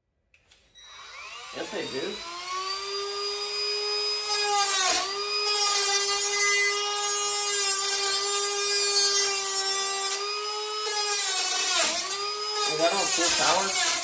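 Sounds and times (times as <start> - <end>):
rotary tool cutting wire mesh: 4.2 - 14.0.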